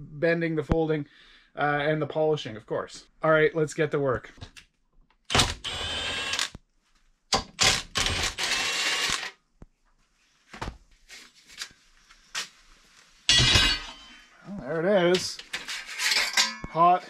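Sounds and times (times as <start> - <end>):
steel parts rattling and scraping: 13.3 - 14.3, 15.1 - 17.0.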